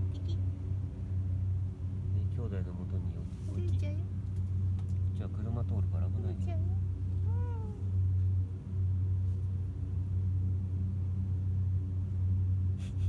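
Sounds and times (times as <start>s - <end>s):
steady low hum: 0.0s - 13.0s
kitten meowing: 7.2s - 7.9s.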